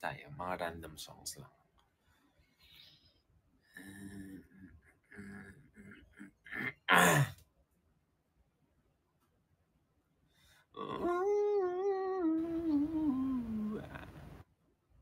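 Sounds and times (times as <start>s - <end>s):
man sighing: 3.8s - 7.3s, 12.6s - 14.2s
man's wordless vocal sounds: 3.8s - 7.3s, 10.8s - 14.4s.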